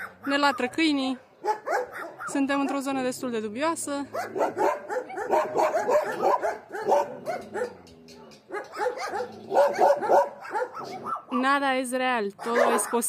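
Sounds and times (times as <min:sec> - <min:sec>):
dogs barking: 0:00.0 - 0:03.1, 0:04.0 - 0:11.6, 0:12.3 - 0:13.0.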